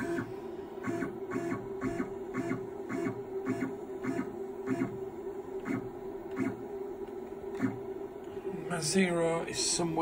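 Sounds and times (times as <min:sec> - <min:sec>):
electrical hum: 0:00.0 - 0:10.0.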